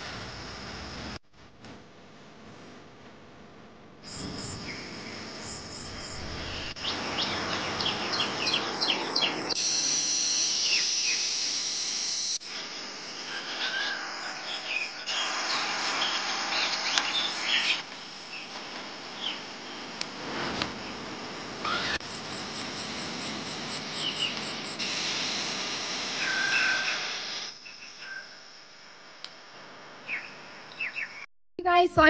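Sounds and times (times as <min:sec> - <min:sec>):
high insect buzz: 0:04.0 - 0:20.0, 0:20.7 - 0:28.9
birds chirping: 0:04.2 - 0:09.6.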